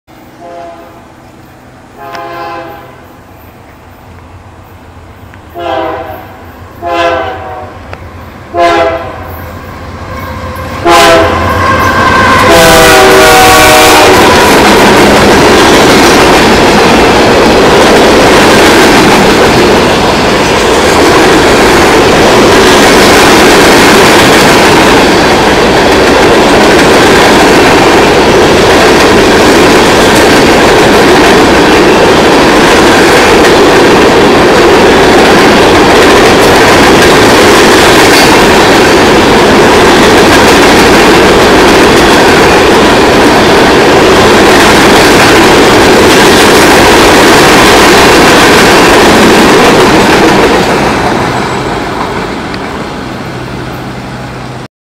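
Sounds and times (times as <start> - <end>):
train horn blasts: 0.3 - 1.0, 1.9 - 3.1, 5.5 - 14.6
steel wheels on rails: 9.3 - 53.9.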